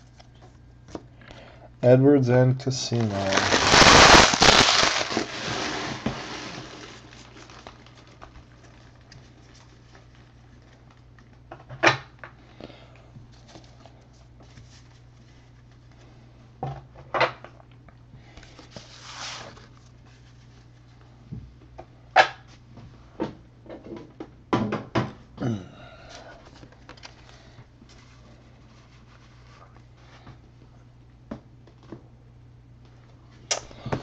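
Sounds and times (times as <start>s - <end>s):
low steady hum: 0.0s - 34.0s
card packs rustling: 2.6s - 11.2s.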